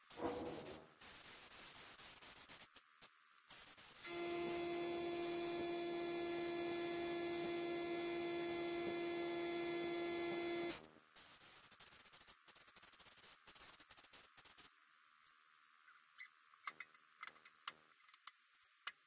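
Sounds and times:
faint hiss: 0:00.0 - 0:04.1, 0:10.7 - 0:16.3.

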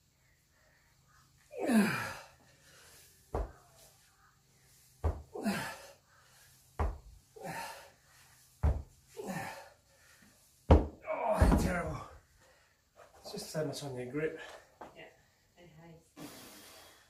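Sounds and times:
person grunting with effort: 0:01.6 - 0:02.3, 0:05.3 - 0:05.9, 0:11.0 - 0:12.1
dumbbells knocking on rubber floor: 0:06.8 - 0:07.1, 0:08.6 - 0:08.9, 0:10.7 - 0:11.8.

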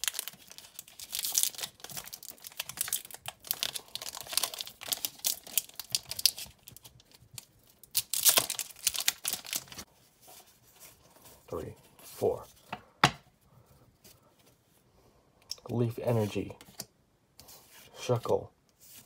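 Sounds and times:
foil wrapper crinkling and tearing: 0:00.0 - 0:09.9.

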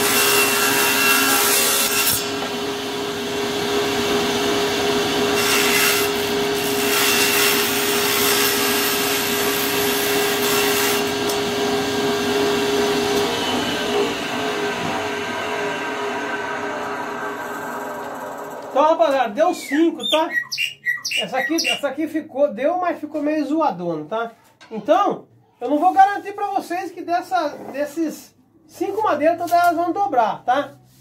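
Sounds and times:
table saw motor hum: 0:00.0 - 0:19.1.

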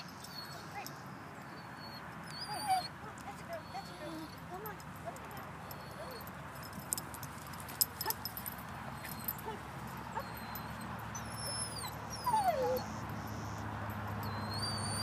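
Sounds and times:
small dog whining: 0:01.8 - 0:02.9, 0:09.1 - 0:13.6, 0:14.3 - 0:15.0.

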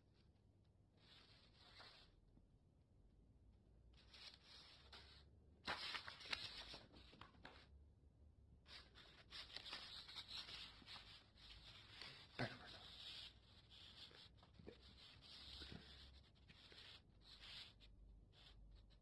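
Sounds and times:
paper rustling and crinkling: 0:01.0 - 0:02.1, 0:04.0 - 0:07.7, 0:08.7 - 0:19.0.

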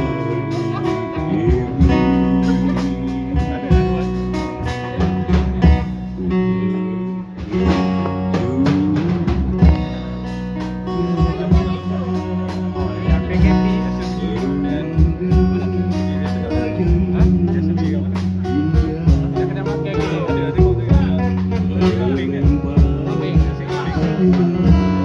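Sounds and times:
amplified guitar: 0:00.0 - 0:25.0
bass line: 0:00.0 - 0:25.0
man singing into a microphone: 0:00.0 - 0:25.0.

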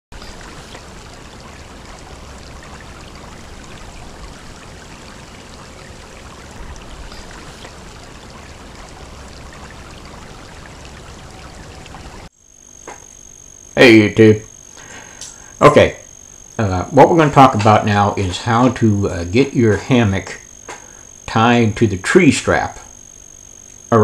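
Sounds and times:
creek water running over rocks: 0:00.1 - 0:12.3.

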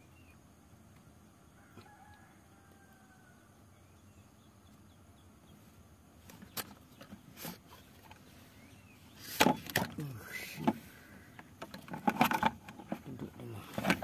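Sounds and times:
thin bird calls: 0:01.4 - 0:11.6.

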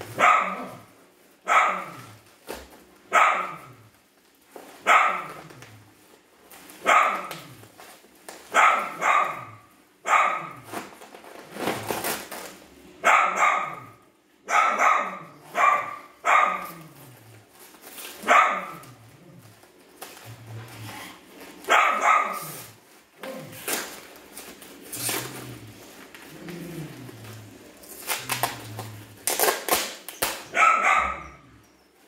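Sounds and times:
dog barking: 0:00.2 - 0:02.1, 0:03.1 - 0:03.8, 0:04.8 - 0:05.4, 0:06.8 - 0:07.4, 0:08.5 - 0:10.7, 0:13.0 - 0:16.9, 0:18.2 - 0:18.9, 0:21.7 - 0:22.6, 0:30.5 - 0:31.5.

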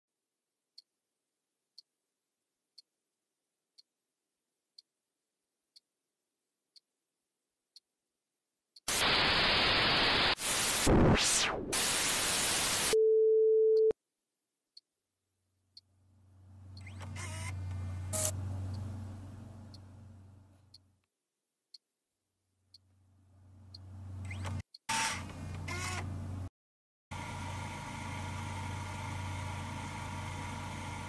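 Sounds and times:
tv static with glitchy sweep: 0:08.9 - 0:13.0
steady beep: 0:12.9 - 0:14.0.

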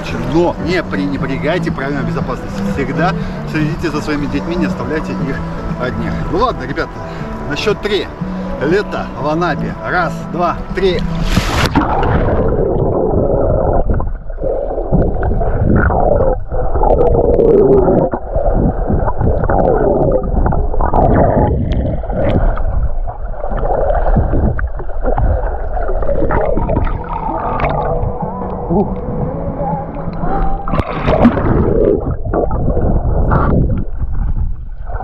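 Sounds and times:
water rushing underwater: 0:10.2 - 0:35.0
underwater bubbles gurgling: 0:11.0 - 0:35.0.

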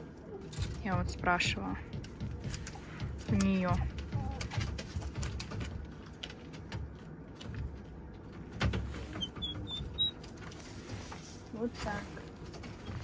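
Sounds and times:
poults peeping: 0:09.2 - 0:10.4.

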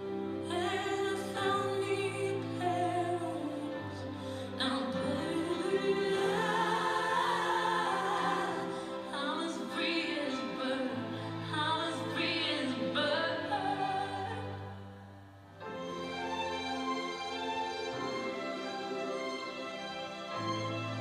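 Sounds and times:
slow song with singing voice: 0:00.0 - 0:21.0
sustained accompaniment: 0:12.7 - 0:21.0.

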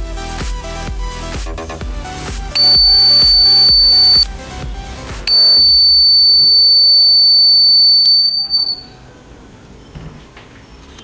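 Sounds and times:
background music: 0:00.0 - 0:09.9
piezo buzzer high-pitched tone: 0:02.6 - 0:04.3, 0:05.3 - 0:08.9.

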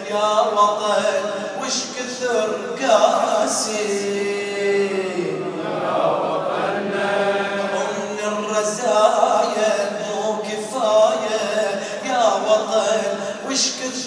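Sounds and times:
man chanting over loudspeaker: 0:00.0 - 0:14.0.

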